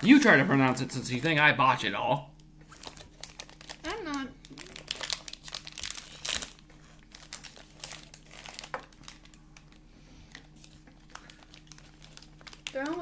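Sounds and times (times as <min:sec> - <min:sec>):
wrapper crinkling and tearing: 0:02.6 - 0:13.0.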